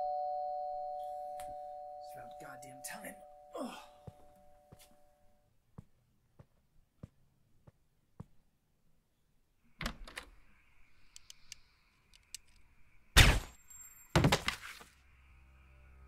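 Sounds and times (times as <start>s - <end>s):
handgun shot: 13.2s - 13.5s.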